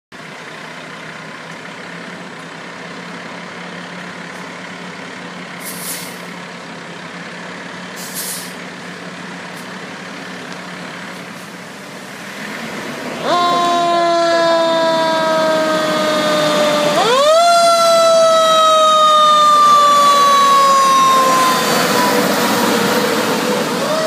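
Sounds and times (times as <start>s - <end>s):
diesel engine running: 0.1s - 24.0s
air brakes hissing: 5.6s - 6.3s, 8.0s - 8.6s.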